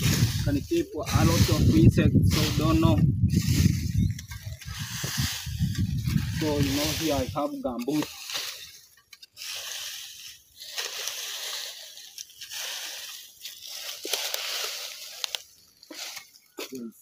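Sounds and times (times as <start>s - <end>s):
hoe scraping leaves and soil: 0.0s - 16.9s.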